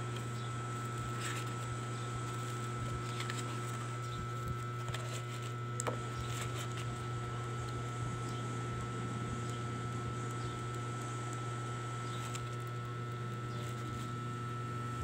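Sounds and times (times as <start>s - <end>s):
steady low hum: 0.0s - 15.0s
book pages turning: 0.1s - 7.1s, 12.1s - 12.8s, 13.5s - 14.2s.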